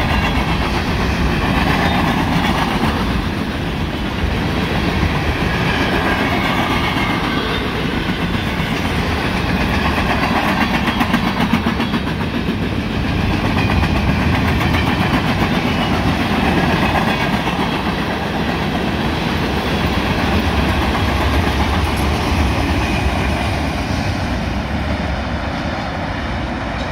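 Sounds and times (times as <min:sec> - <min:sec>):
freight train wheels on rails: 0:00.0 - 0:26.9.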